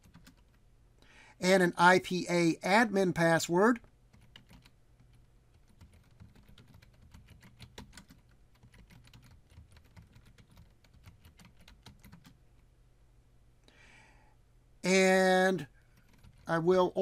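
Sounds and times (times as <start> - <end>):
typing on keyboard: 0.0 - 0.6, 4.1 - 12.4, 15.8 - 16.5.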